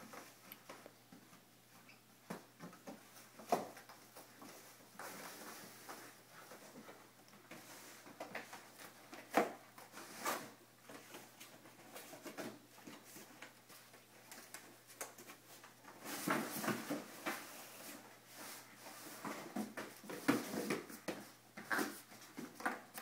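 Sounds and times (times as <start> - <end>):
puppies tearing cardboard: 21.6 - 22.8.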